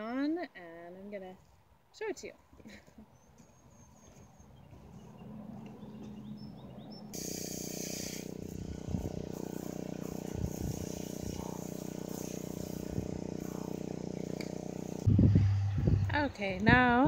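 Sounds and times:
mechanical hum: 3.2s - 17.0s
garden hose spraying water: 7.1s - 15.1s
short hiss: 7.2s - 8.6s.

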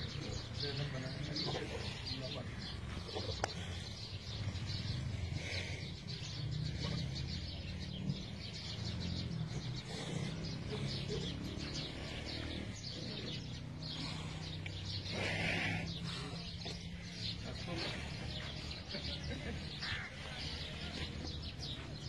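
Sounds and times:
small birds chirping and twittering: 0.0s - 22.0s.

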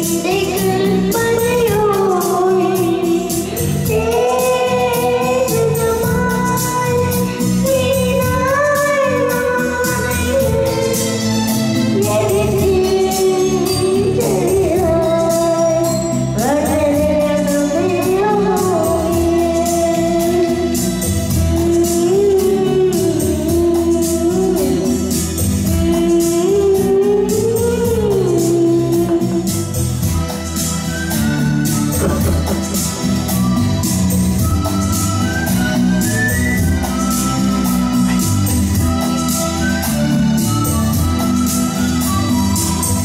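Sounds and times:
boy singing into a microphone: 0.0s - 30.1s
karaoke backing track with beat: 0.0s - 43.0s.

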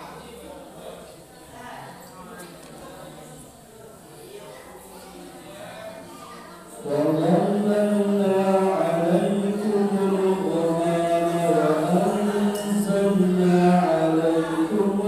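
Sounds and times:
boy reciting in melodic chant: 4.2s - 15.0s.

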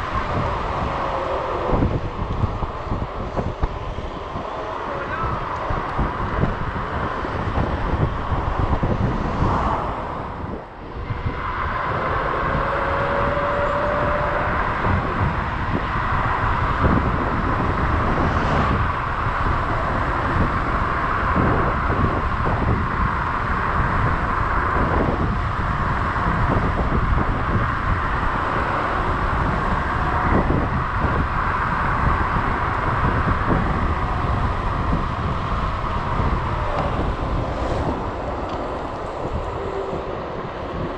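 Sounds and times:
tyre and road noise: 0.0s - 40.9s
wind rushing over microphone: 0.0s - 40.9s.

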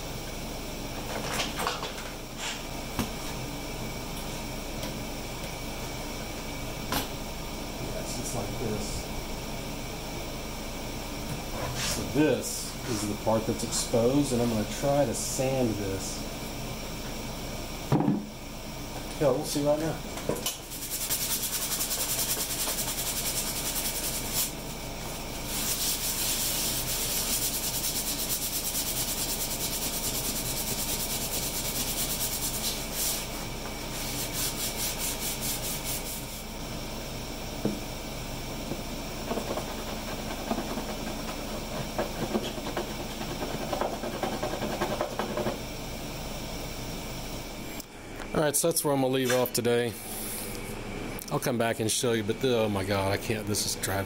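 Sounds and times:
sandpaper scratching plastic: 20.7s - 24.5s, 25.5s - 33.2s, 39.3s - 45.6s
rubbing and handling: 25.5s - 33.3s.

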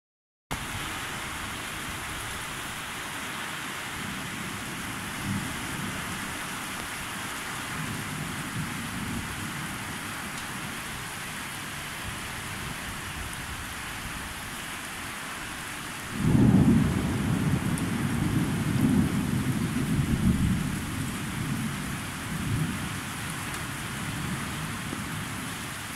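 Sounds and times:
steady rain: 0.5s - 25.9s
distant thunder rumbles: 16.1s - 23.3s.

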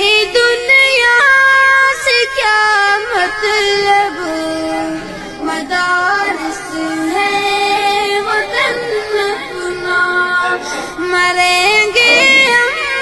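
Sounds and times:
high solo voice singing: 11.7s - 13.0s.

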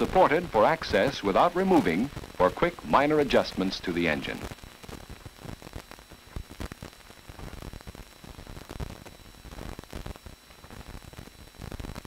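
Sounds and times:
film soundtrack hiss and crackle: 0.0s - 12.0s.

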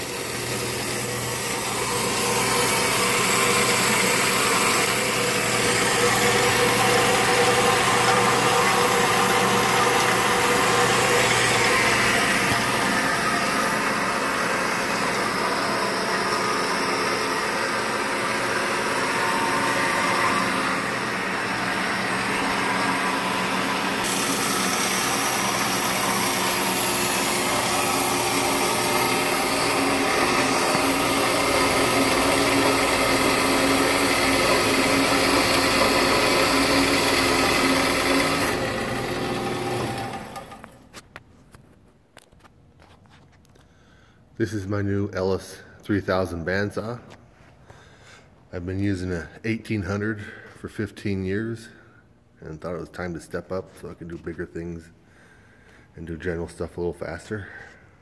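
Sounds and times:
band saw running: 0.0s - 40.9s.

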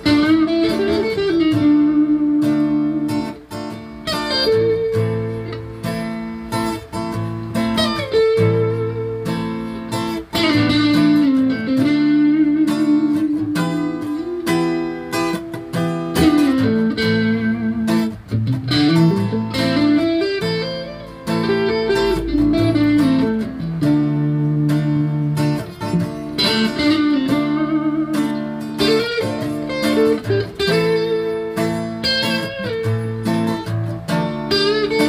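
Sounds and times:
acoustic guitar strumming chords: 0.0s - 35.0s
electric guitar lead: 0.0s - 35.0s.

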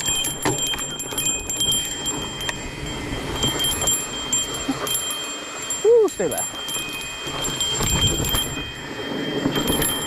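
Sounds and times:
rattling clicks from bumps: 0.0s - 2.6s
high ringing tone from bike: 0.0s - 10.0s.

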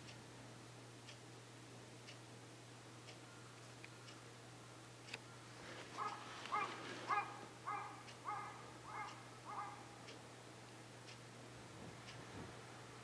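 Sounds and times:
animal calling: 6.0s - 9.9s.

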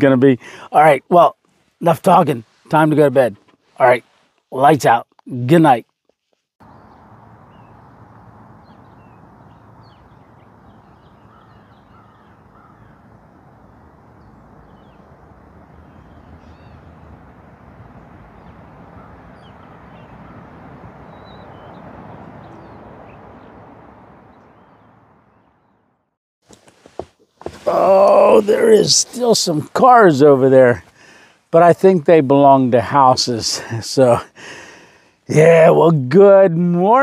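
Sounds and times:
birds calling: 6.6s - 25.8s
crows cawing: 11.2s - 13.1s, 18.9s - 20.5s.

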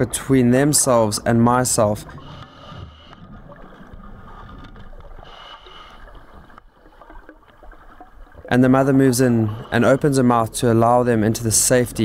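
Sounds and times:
underwater rumble and hiss: 0.0s - 12.0s.

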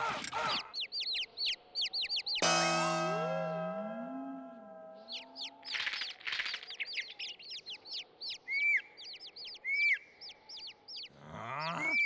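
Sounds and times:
cartoon birds chirping: 0.0s - 2.6s, 5.0s - 12.0s.

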